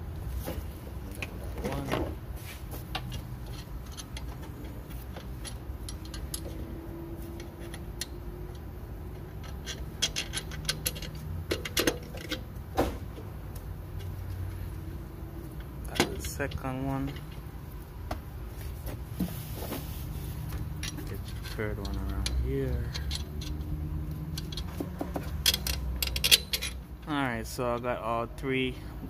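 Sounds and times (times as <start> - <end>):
steady low hum: 0.0 - 29.0
metal bolts clicking: 2.9 - 12.6, 20.7 - 27.1.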